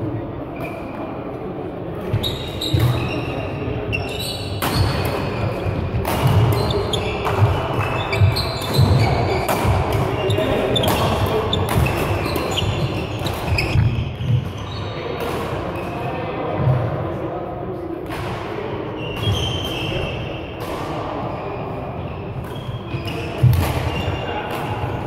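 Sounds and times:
shoes squeaking: 0:02.1 - 0:15.1, 0:21.4 - 0:24.4
rackets striking shuttlecock: 0:04.5 - 0:14.6, 0:22.4 - 0:25.0.

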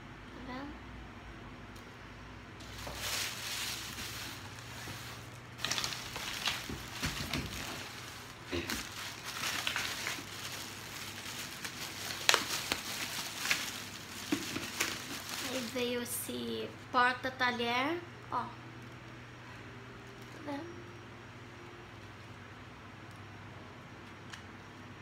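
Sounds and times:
plastic bag crinkling: 0:02.6 - 0:16.4.

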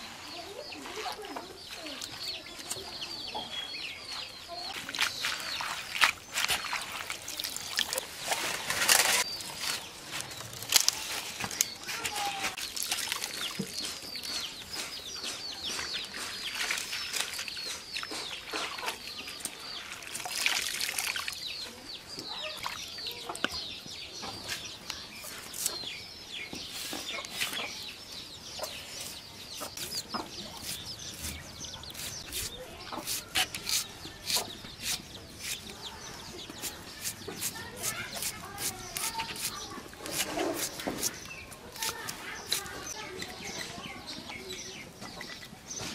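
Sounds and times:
water splashing: 0:04.8 - 0:09.0
chickens clucking and chirping: 0:13.7 - 0:19.8, 0:21.4 - 0:45.9.

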